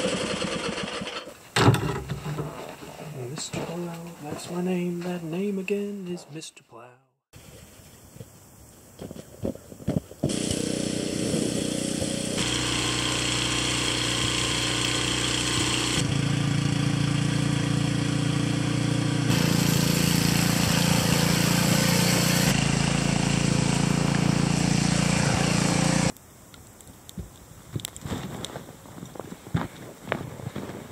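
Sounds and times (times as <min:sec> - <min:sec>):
small snowblower engine running: 0:00.0 - 0:01.3, 0:10.3 - 0:26.1.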